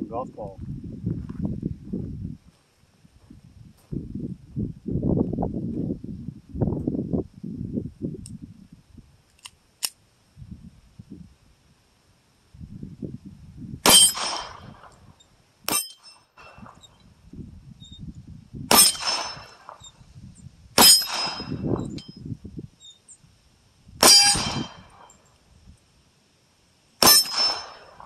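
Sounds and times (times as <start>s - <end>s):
wind buffeting microphone: 0.0s - 9.3s, 10.3s - 11.6s, 12.5s - 15.2s, 16.4s - 22.8s, 23.8s - 25.8s
pistol shots: 13.8s - 15.0s, 18.7s - 19.9s, 20.8s - 21.6s, 24.0s - 25.0s, 27.0s - 28.0s
ringing struck steel plate: 13.9s - 14.8s, 15.7s - 16.7s, 18.7s - 19.8s, 20.8s - 22.2s, 24.0s - 25.2s, 27.0s - 28.0s.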